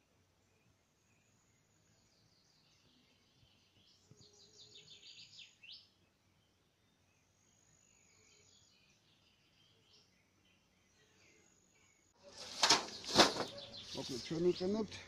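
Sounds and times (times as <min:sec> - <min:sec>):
high bird chirps: 0:12.3 - 0:14.8.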